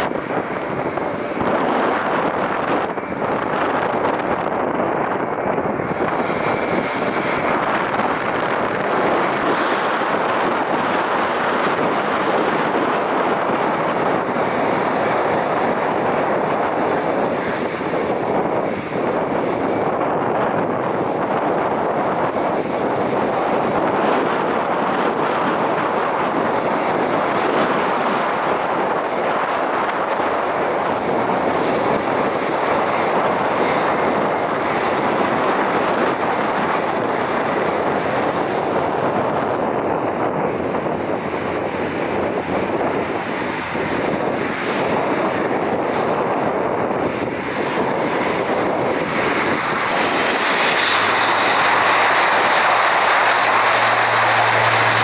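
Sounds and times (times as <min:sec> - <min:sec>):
low propeller hum: 0:00.0 - 0:55.0
turboprop plane taxiing drone: 0:00.0 - 0:55.0.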